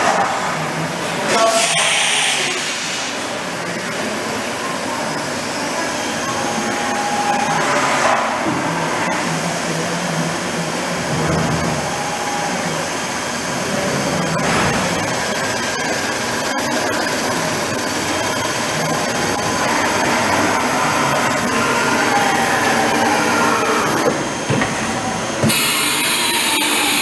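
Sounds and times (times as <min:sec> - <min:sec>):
loud rushing machine noise: 0:01.6 - 0:27.0.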